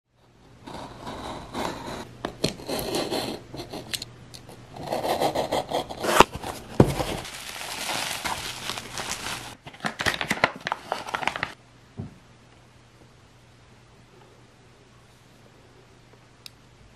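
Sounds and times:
bubble wrap rustling and crinkling: 6.4s - 11.6s.

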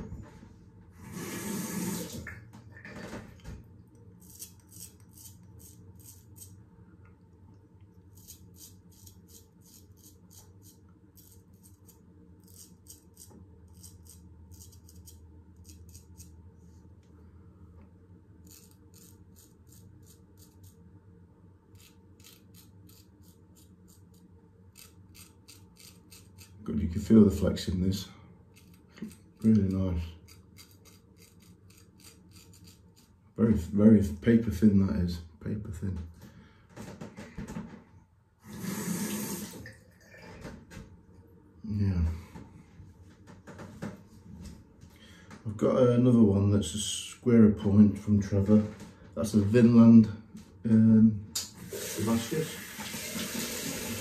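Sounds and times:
razor scraping stubble: 4.2s - 6.6s, 8.1s - 16.4s, 18.4s - 20.8s, 21.7s - 26.6s, 28.5s - 33.2s.

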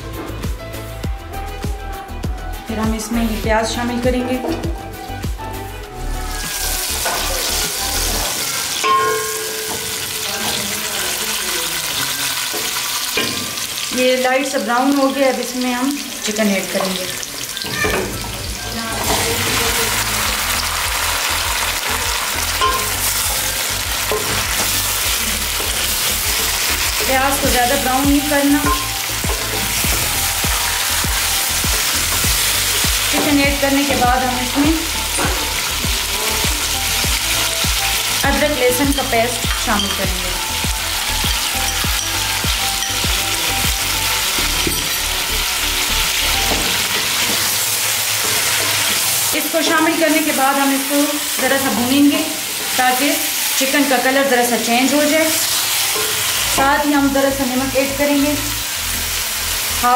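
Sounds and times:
background music with low beat: 0.0s - 9.9s, 18.0s - 47.5s
chicken sizzling in hot oil: 6.0s - 59.9s.

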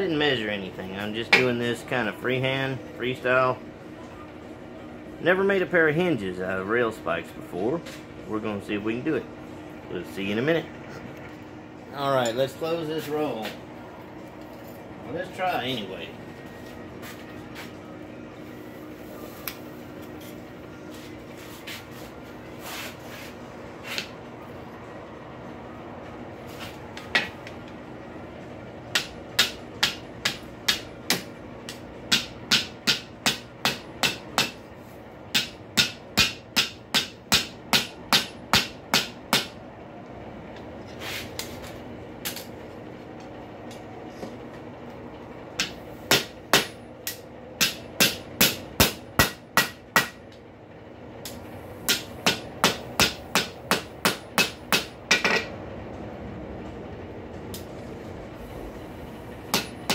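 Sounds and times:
steady low hum: 0.0s - 59.9s
hammer striking metal on anvil: 28.9s - 34.6s, 35.3s - 39.6s, 45.6s - 50.2s, 51.9s - 55.5s, 59.5s - 59.9s.

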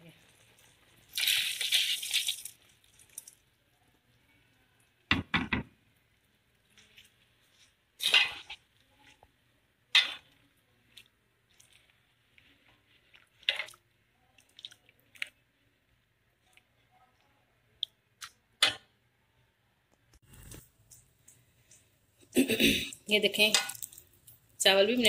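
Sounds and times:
pot of stock bubbling: 0.0s - 19.0s.

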